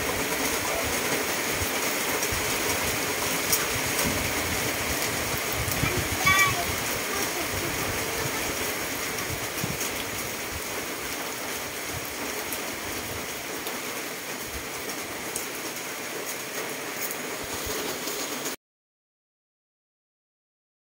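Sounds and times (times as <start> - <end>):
heavy rain hissing: 0.0 - 18.6.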